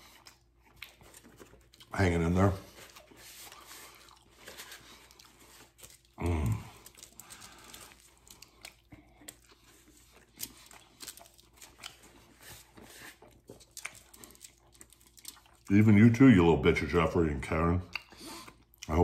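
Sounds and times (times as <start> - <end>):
man chewing food: 0.0 - 16.1, 17.8 - 19.0
wrapper crinkling: 2.8 - 8.7
low throaty vocal sound: 6.2 - 6.8.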